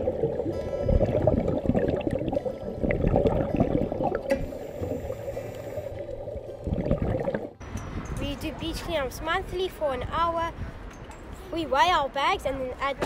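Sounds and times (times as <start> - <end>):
water sloshing and gurgling underwater: 0.0 - 7.6.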